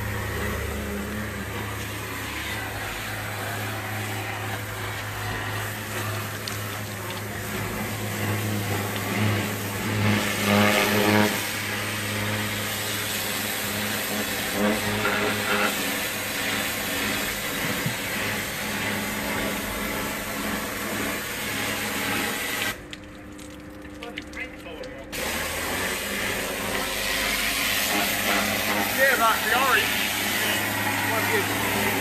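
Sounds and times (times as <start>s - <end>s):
hiss: 0.0s - 22.8s, 25.2s - 32.0s
engine hum: 0.0s - 32.0s.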